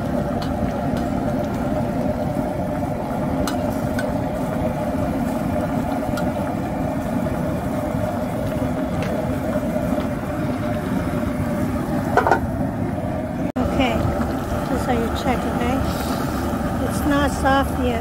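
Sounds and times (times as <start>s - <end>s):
soup boiling hard: 0.0s - 18.0s
metal lid clank: 12.1s - 12.5s.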